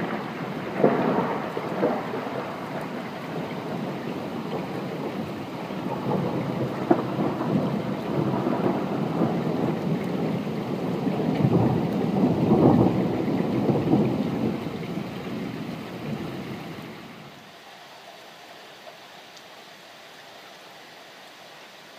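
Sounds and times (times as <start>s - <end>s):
thunder rolling: 0.0s - 17.2s.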